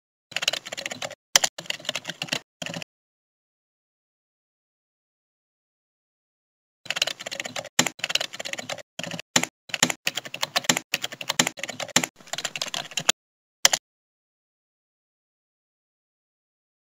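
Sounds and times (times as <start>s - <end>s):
computer keyboard typing: 0.3s - 2.8s, 6.9s - 13.8s.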